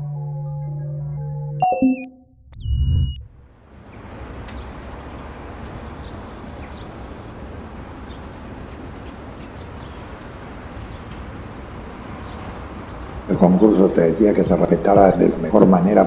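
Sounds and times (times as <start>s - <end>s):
distant traffic: 3.2s - 16.0s
birds chirping: 3.8s - 13.4s
high steady tone: 5.6s - 7.4s.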